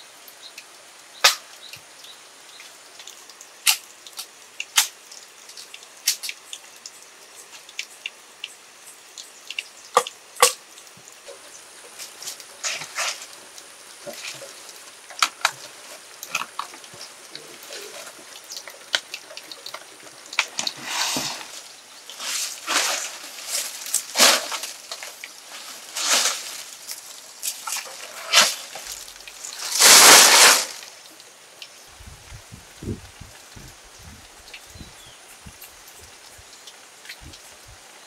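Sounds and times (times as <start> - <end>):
palm fronds rustling: 11.0 - 37.9.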